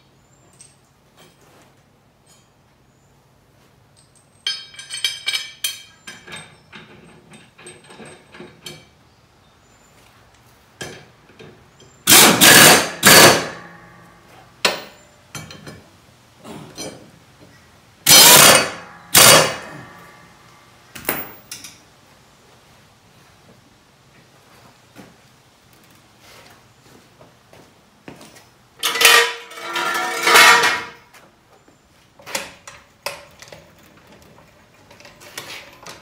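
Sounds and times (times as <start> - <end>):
metal tools clinking: 2.2 - 2.7, 3.9 - 9.0, 28.3 - 31.1
impact wrench bursts: 12.0 - 13.6, 18.1 - 19.7.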